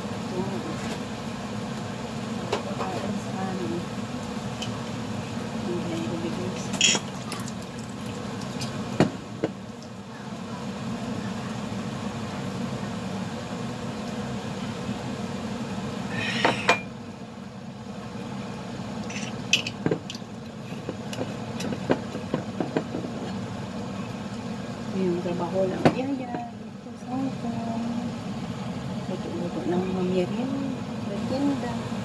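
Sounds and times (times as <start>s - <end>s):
steady low hum: 0.0s - 32.0s
mug and kitchenware clinking: 6.8s - 7.1s.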